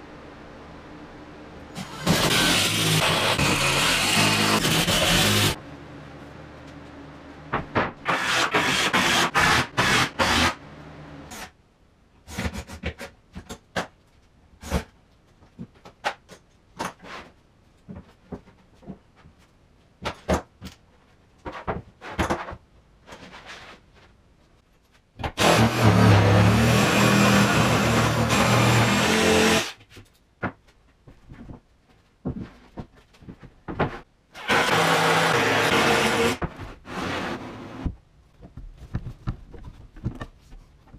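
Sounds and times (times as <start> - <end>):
jigsaw cutting plywood: 1.8 - 5.6, 8.0 - 10.6, 25.4 - 29.8, 34.4 - 37.8
plywood parts knocking and clattering: 37.9 - 40.9.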